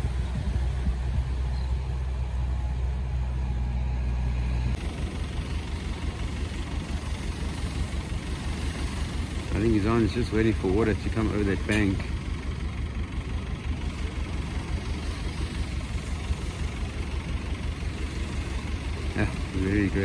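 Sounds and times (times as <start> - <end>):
engine idling: 0.0 - 20.0
surf washing: 5.7 - 12.1.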